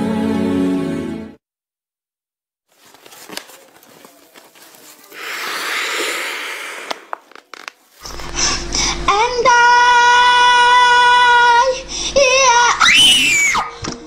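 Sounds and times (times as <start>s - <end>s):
plastic bag crinkling: 2.7s - 5.7s, 6.9s - 8.4s.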